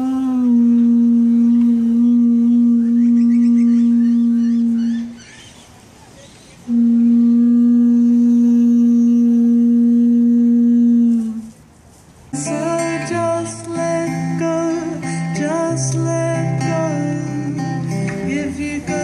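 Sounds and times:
conch shell trumpet blasts: 6.7s - 9.0s.

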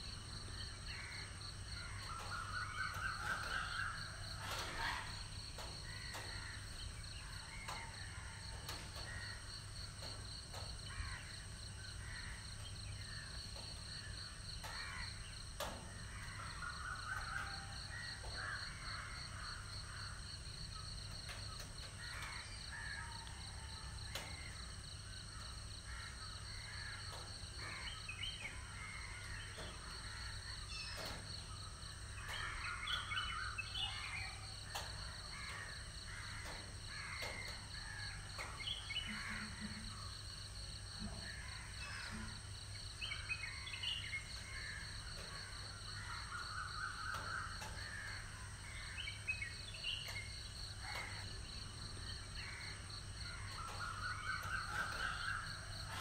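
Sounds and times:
birds calling: 0.0s - 56.0s
faint clicks: 24.1s - 24.5s, 34.6s - 40.0s.

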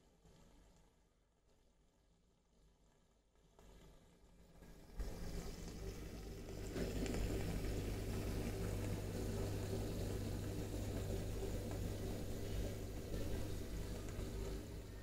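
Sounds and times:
low electric pump hum: 4.4s - 15.0s
aquarium water bubbling: 4.5s - 15.0s.

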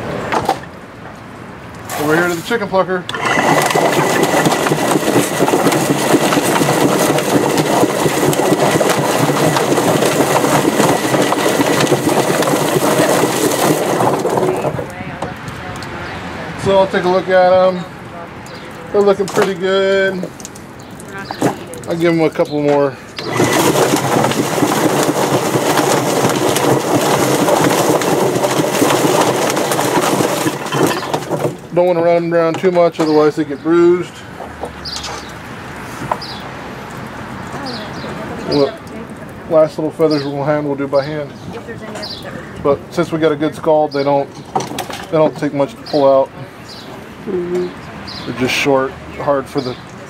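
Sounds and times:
hose spraying water: 1.8s - 4.5s
chicken plucker clattering: 1.9s - 15.0s, 18.5s - 20.5s, 21.2s - 35.4s, 37.5s - 47.0s.

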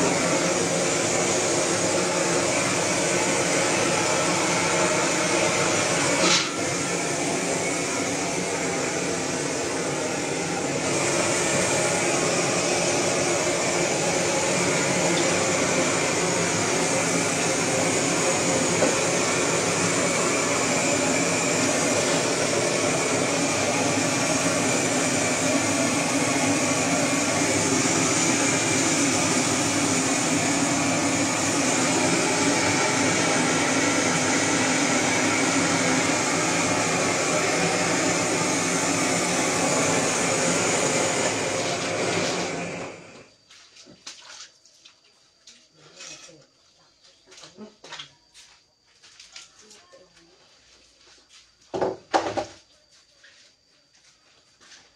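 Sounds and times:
blowtorch hissing: 0.0s - 43.3s.

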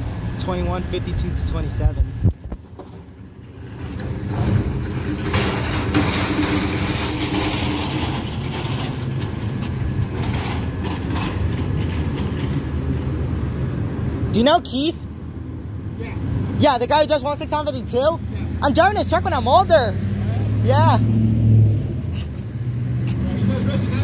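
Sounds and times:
dumpster rattling on casters: 2.6s - 13.4s.

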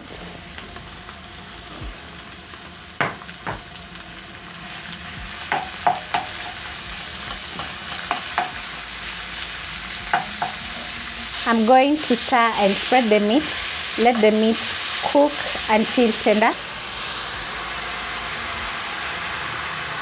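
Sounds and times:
beef and onions sizzling in oil: 0.0s - 20.0s
wooden spoon knocking against pan: 3.0s - 3.6s, 5.5s - 6.6s, 7.5s - 8.6s, 10.1s - 10.6s.

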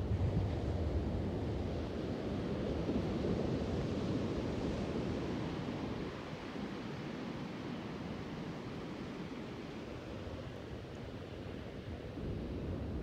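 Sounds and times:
wind rumbling on microphone: 0.0s - 6.8s, 10.2s - 13.0s.

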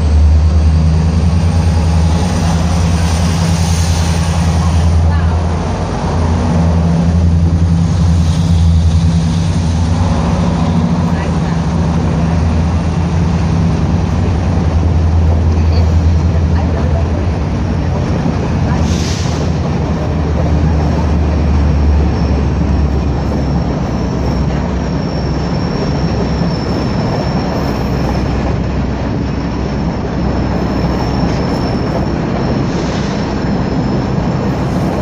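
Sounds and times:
train coaches rumbling on rails: 0.0s - 35.0s
high wheel squeal: 22.0s - 28.6s, 30.1s - 35.0s.

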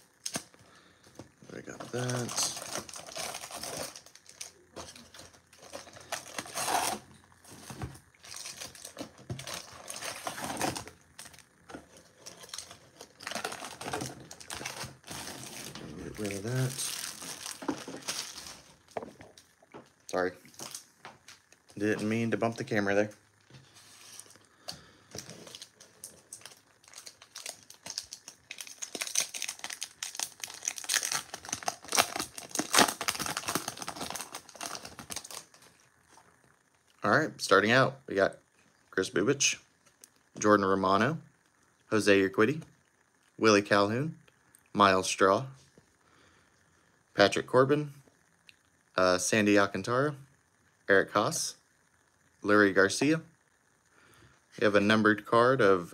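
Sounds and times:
plastic wrappers rustling: 1.5s - 19.4s, 25.1s - 36.2s.

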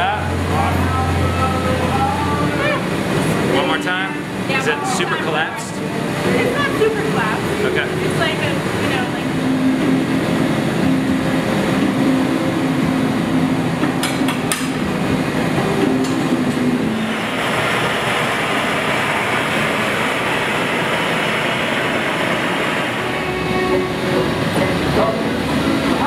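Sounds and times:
gas furnace rushing: 0.0s - 26.0s
torch flame hissing: 16.9s - 25.4s.

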